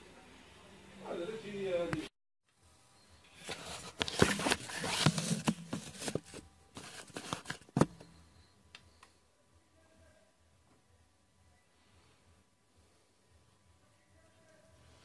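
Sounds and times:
circuit board rustling on paper: 3.3s - 8.0s.

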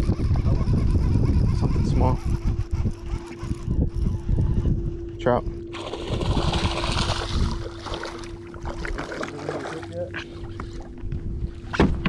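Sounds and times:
low wind rumble: 0.0s - 9.0s, 10.2s - 12.0s
faint steady hum: 0.0s - 12.0s
fish thrashing and splashing: 5.8s - 10.6s.

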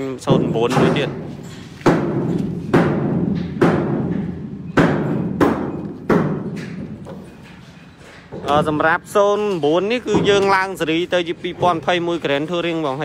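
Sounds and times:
bangs inside steel container: 0.3s - 7.4s.

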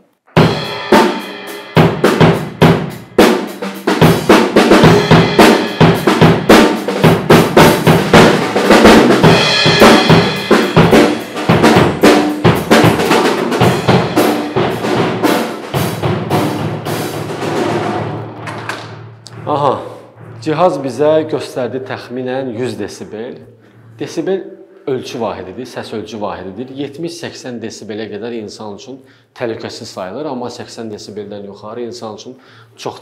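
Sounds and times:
snare drum: 0.3s - 21.0s
crashing cymbals: 0.4s - 7.0s.

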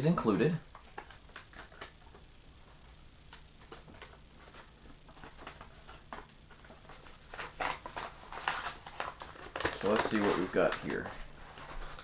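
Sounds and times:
low room hum: 0.0s - 12.0s
package handling taps and rustles: 3.6s - 12.0s.

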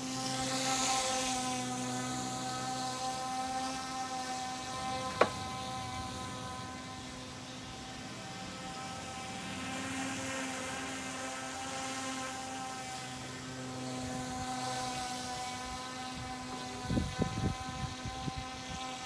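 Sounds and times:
model airboat motor and propeller: 0.0s - 19.0s.

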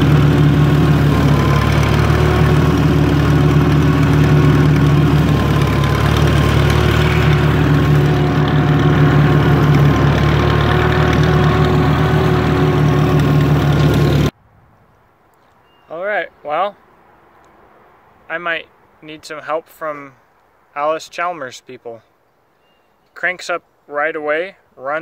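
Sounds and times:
tractor engine running: 0.0s - 14.4s.

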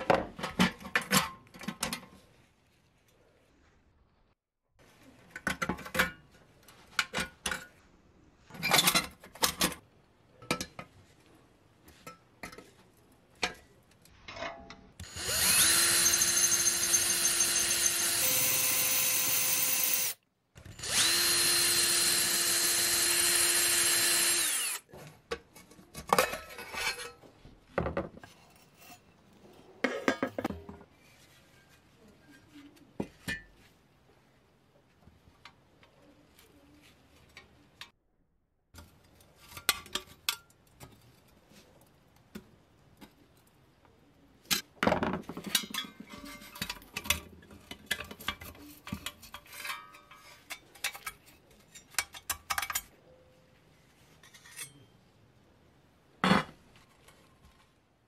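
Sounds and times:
power drill running: 15.0s - 20.2s, 20.8s - 24.8s.

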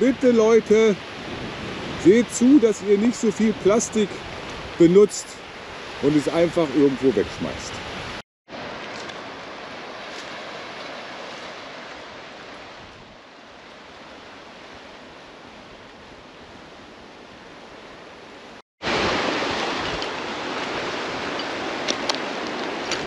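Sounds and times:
surf breaking over reef: 18.8s - 23.0s.

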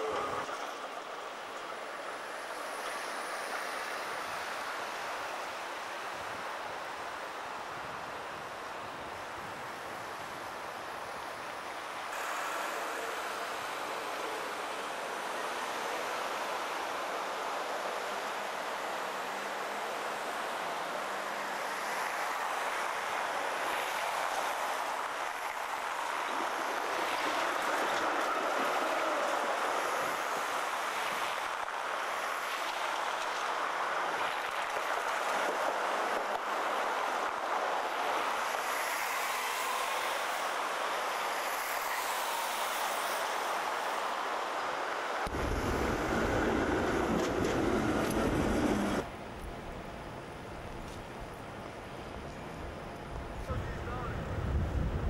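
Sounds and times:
passing traffic: 0.0s - 55.0s
tram wheels rolling on rails: 23.7s - 39.4s, 45.2s - 52.7s
tram passing with low rumble: 45.3s - 55.0s.

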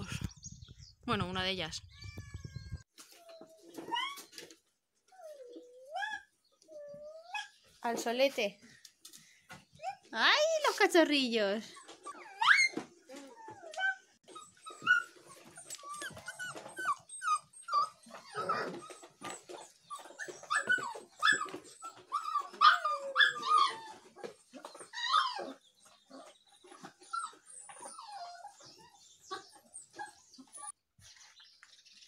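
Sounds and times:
puppies whimpering and yipping: 1.9s - 7.6s, 11.7s - 30.8s.

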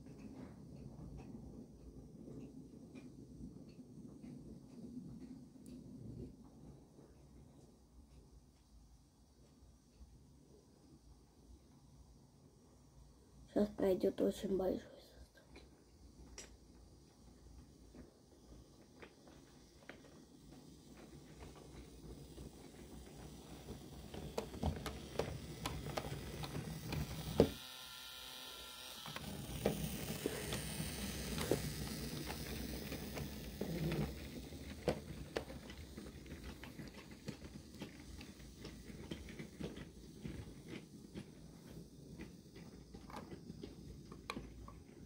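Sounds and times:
wooden toy train rolling on track: 15.6s - 45.0s.

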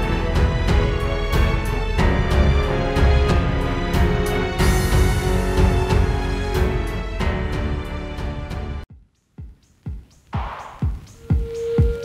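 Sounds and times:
drum hits: 8.9s - 12.0s.

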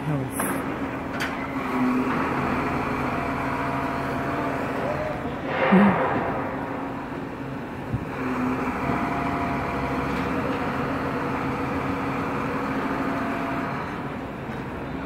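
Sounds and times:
diesel engine running under load: 0.0s - 15.0s.

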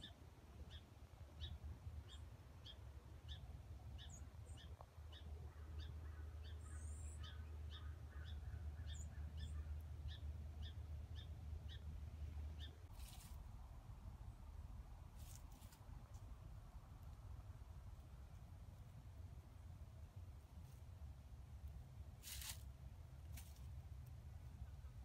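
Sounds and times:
other birds chirping: 0.0s - 13.4s
faint low rumble: 0.0s - 25.0s.

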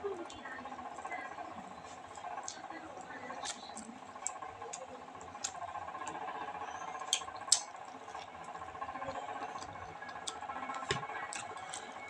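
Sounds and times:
faint steady hum: 0.0s - 12.0s
wet chewing and lip smacks: 7.0s - 8.3s.

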